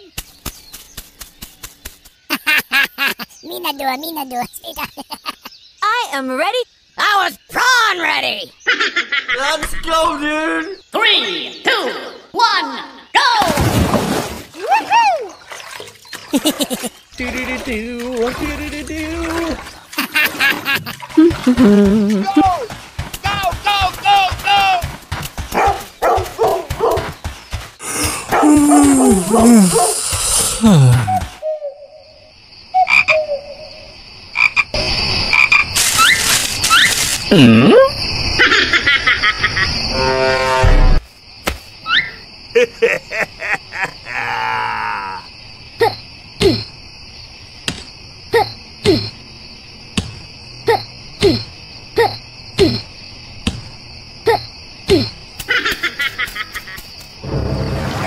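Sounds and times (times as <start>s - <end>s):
crickets chirring: 0.0s - 58.0s
fast run of clicks: 0.2s - 2.2s
rising chirps: 27.8s - 34.1s
croaking animal calls: 27.8s - 41.0s, 41.8s - 46.0s
hiss: 29.2s - 31.0s, 35.8s - 37.2s.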